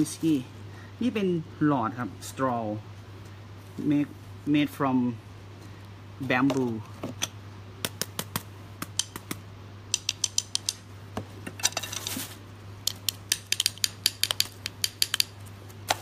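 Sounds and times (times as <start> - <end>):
bamboo straws clicking: 7.9 - 10.8, 12.8 - 16.0.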